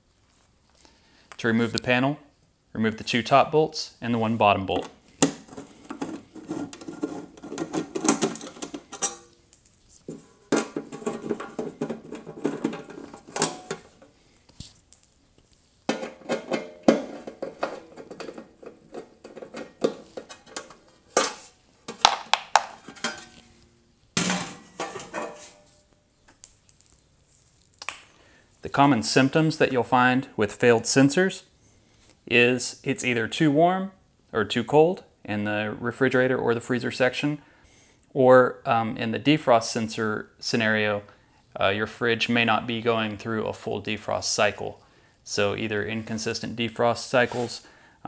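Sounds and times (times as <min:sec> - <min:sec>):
metallic rattling and clinking: 0:06.8 - 0:09.4, 0:10.1 - 0:14.0.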